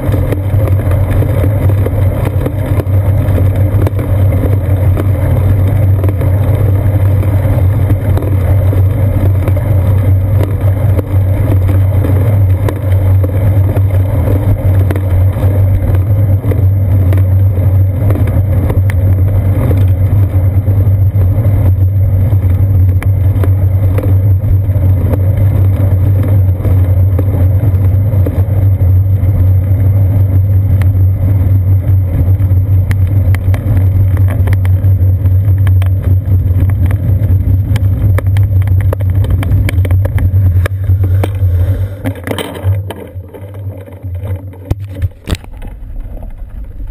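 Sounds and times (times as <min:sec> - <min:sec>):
road vibration rumble: 0:00.0 - 0:46.9.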